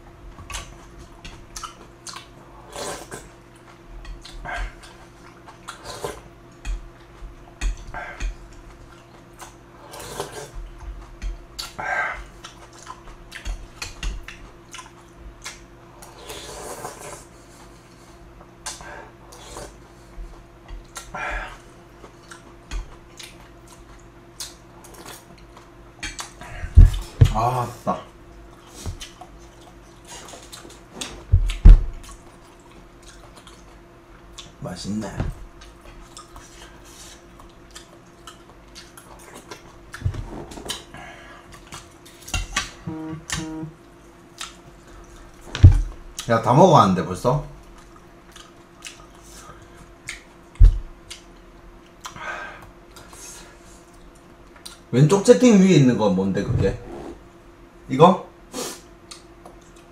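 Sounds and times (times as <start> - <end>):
chewing and mouth clicks: 0.4 - 2.4, 3.0 - 16.1, 20.7 - 27.1, 28.5 - 34.6, 35.6 - 40.9, 41.5 - 42.6, 44.3 - 46.3, 47.6 - 52.2, 52.9 - 54.9, 59.0 - 59.9
slurping noodles: 2.6 - 3.2, 5.8 - 6.2, 9.8 - 10.6, 16.0 - 17.3.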